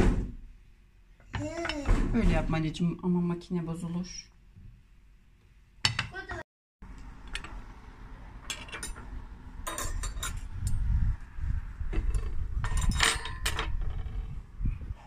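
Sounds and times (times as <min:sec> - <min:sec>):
cutlery clinking on plates: 0:09.7 - 0:10.4.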